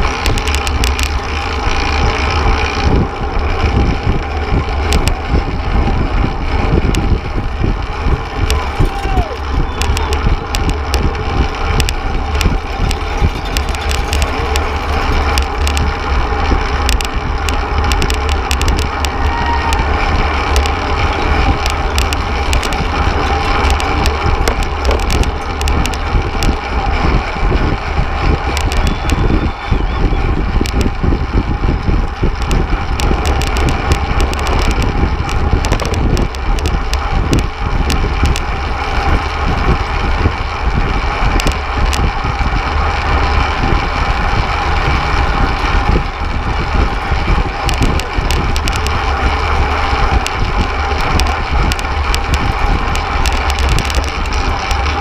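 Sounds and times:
small clicks and knocks: 0.0s - 1.7s, 8.2s - 27.2s, 28.4s - 30.0s, 32.2s - 39.2s, 41.3s - 42.1s, 44.9s - 55.0s
road noise: 0.0s - 55.0s
wind buffeting microphone: 0.0s - 55.0s.

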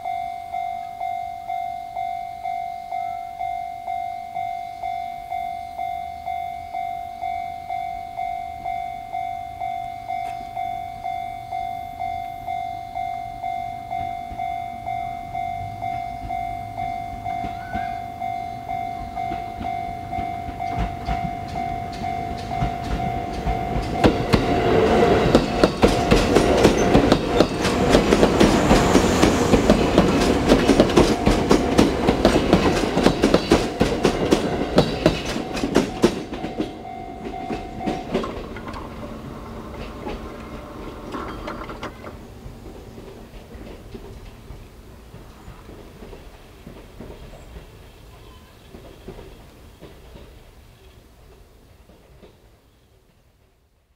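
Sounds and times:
level crossing bell ringing: 0.0s - 27.6s, 33.0s - 42.0s
train wheels clattering over rails: 13.9s - 50.5s.

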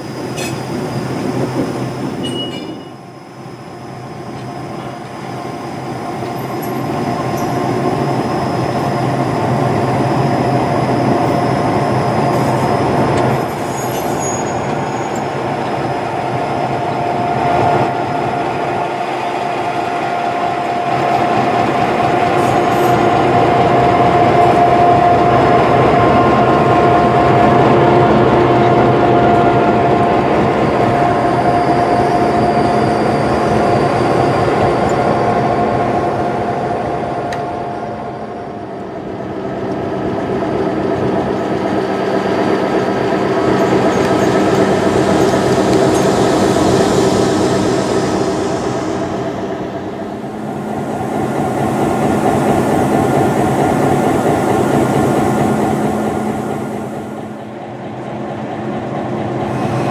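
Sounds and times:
locomotive engine drone: 0.0s - 59.9s.

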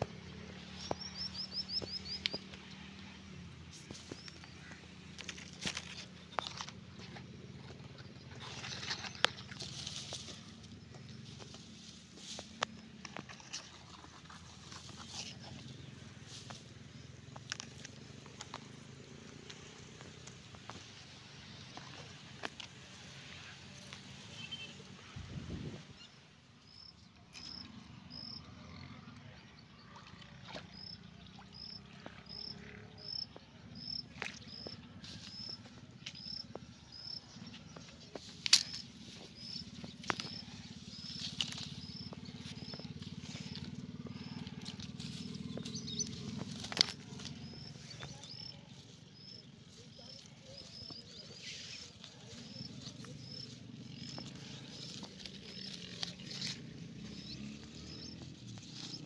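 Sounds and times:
rustling in grass: 8.4s - 16.8s, 37.3s - 59.0s.

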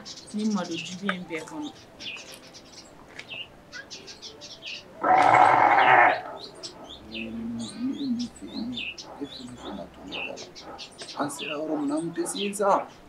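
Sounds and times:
small birds chirping: 0.0s - 13.0s
goat bleating: 5.0s - 6.3s.

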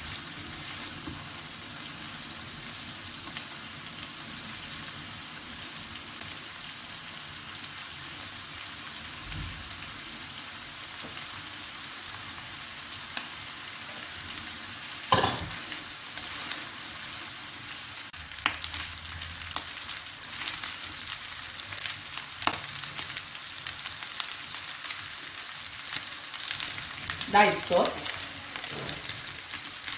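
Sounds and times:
rice sizzling in a wok: 0.0s - 29.9s
wooden spatula scraping wok: 15.4s - 17.6s.

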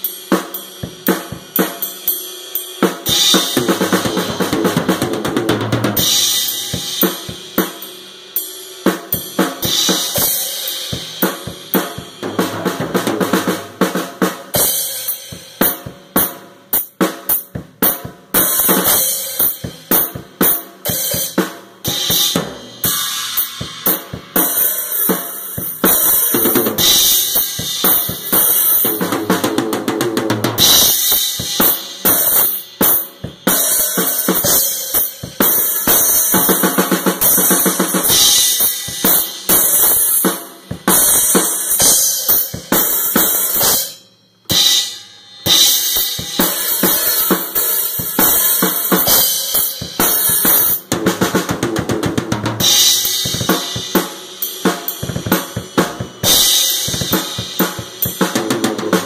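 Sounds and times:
drum kit solo: 0.0s - 59.0s
cymbal wash: 6.0s - 8.7s.

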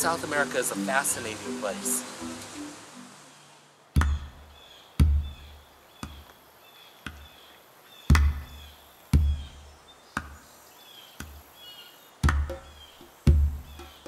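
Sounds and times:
high bird chirps: 1.4s - 6.3s
slow booming drum beat: 4.0s - 5.5s, 9.2s - 9.6s, 12.2s - 14.0s.

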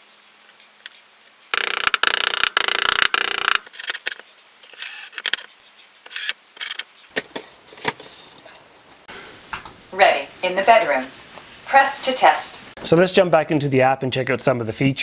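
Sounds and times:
cordless drill driving screws: 1.6s - 4.1s, 4.8s - 5.3s.

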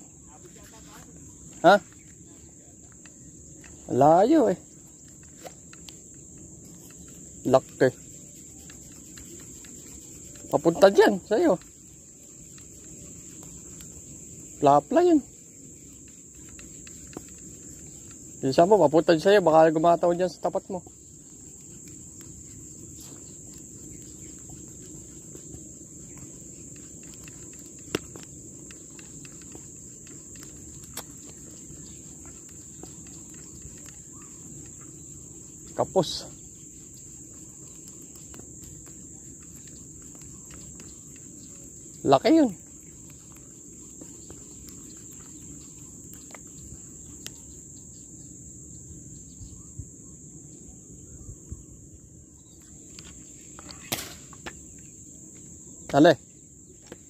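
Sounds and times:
high-pitched insect chorus: 0.0s - 57.0s
faint ticks: 2.8s - 19.4s, 20.2s - 48.0s.

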